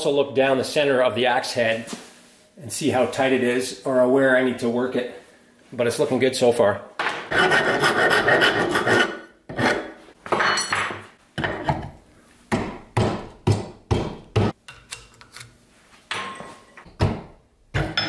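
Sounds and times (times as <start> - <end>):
wood rasp scraping wood: 7.3 - 10.0, 14.3 - 14.6.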